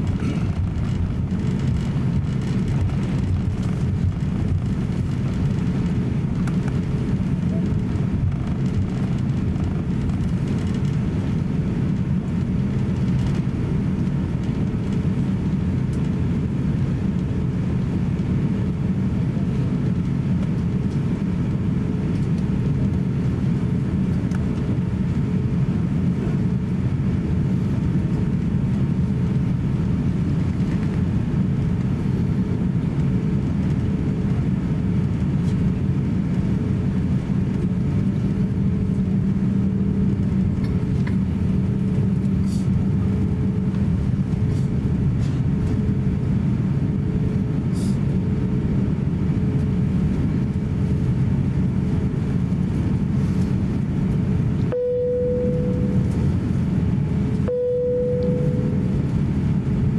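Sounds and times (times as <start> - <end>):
aircraft cabin engine drone: 0.0 - 59.9
faint steady hum: 49.9 - 59.9.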